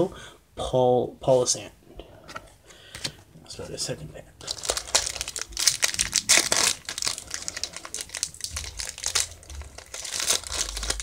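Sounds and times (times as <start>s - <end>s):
foil wrapper crinkling and tearing: 4.4s - 11.0s.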